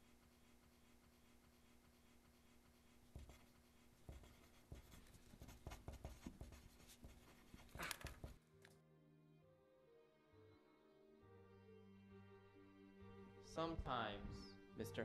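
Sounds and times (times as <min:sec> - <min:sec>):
pen scratching on paper: 0:00.0 - 0:08.4.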